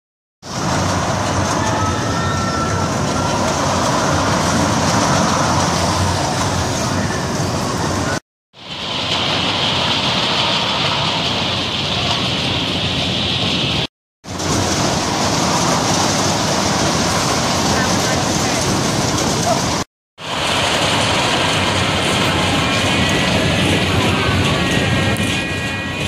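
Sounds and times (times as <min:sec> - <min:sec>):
ride machinery noise: 0:00.4 - 0:26.0
crowd sounds: 0:22.0 - 0:26.0.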